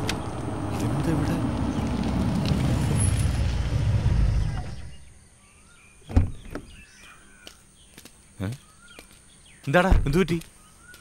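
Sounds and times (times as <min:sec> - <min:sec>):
engine rumbling: 0:00.0 - 0:05.3
birds chirping: 0:00.0 - 0:11.0.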